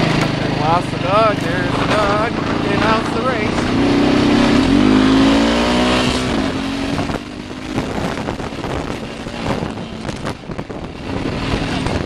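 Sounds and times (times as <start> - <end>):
atv engine running: 0.0 - 12.0.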